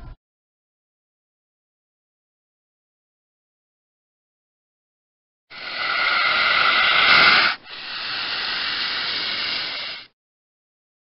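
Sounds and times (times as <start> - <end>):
snake hissing: 5.5 - 10.2.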